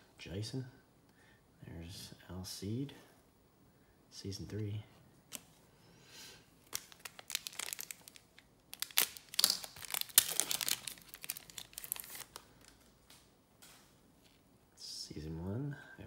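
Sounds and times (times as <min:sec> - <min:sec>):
wrapper crinkling and tearing: 0:06.6 - 0:13.9.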